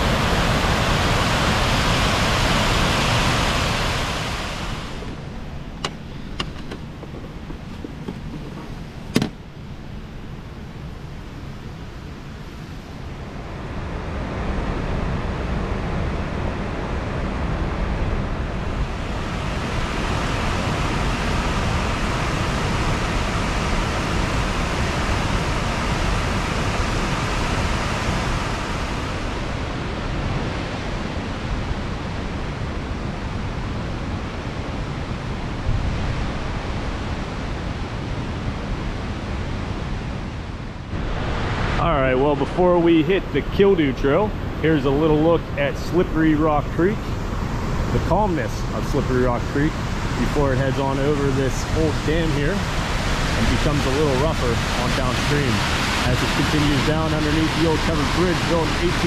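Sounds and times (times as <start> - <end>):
creek water rushing: 0.0 - 9.1, 18.6 - 32.2, 40.9 - 59.0
wind rumble on microphone: 0.0 - 59.0.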